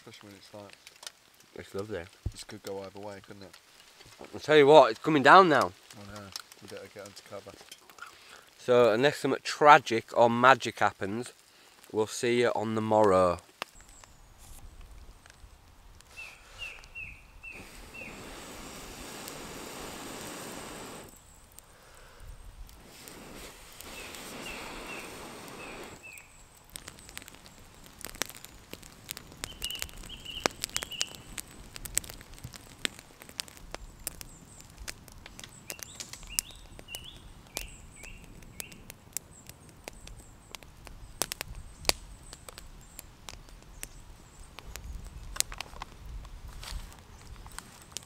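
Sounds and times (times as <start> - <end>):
water dripping onto leaves: 0.0 - 48.0
small bird chirping: 16.1 - 18.2, 23.9 - 27.6, 29.2 - 31.4, 35.4 - 43.1.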